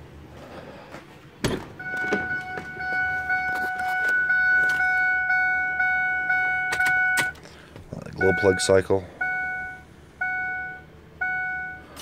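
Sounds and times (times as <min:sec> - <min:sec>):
electronic warning chime: 0:01.8 - 0:07.3, 0:08.2 - 0:11.8.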